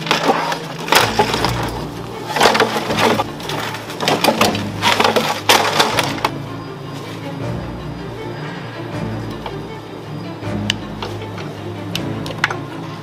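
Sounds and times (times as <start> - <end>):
plastic trim cracking and snapping: 0.0 - 6.3.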